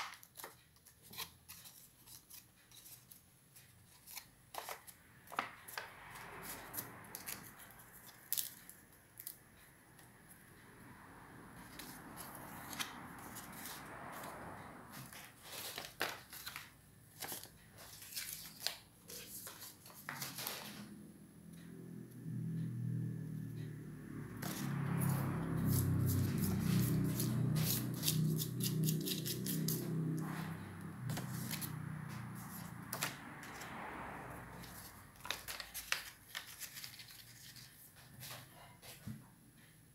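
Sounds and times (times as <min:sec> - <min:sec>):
paper rustling and crinkling: 0:15.0 - 0:20.8, 0:34.7 - 0:39.0
stiff paper rustling and crinkling: 0:34.7 - 0:39.0.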